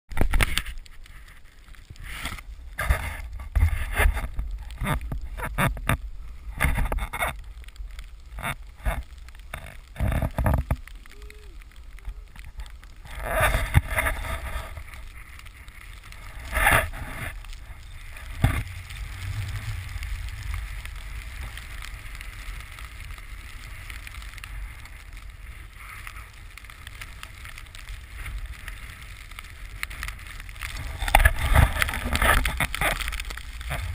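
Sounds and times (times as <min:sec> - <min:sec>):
wind rushing over microphone: 0:13.1 - 0:26.8
snowboard hissing through snow: 0:16.2 - 0:27.4.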